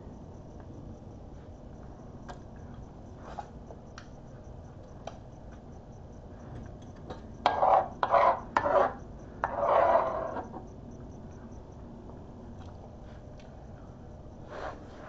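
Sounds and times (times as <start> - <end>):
metal fork scraping plate: 7.4 - 10.5.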